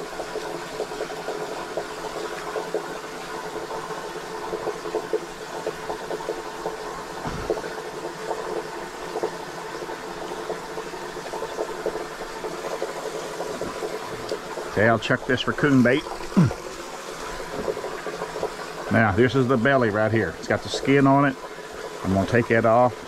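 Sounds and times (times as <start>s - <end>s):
dull bump: 7.2s - 7.6s.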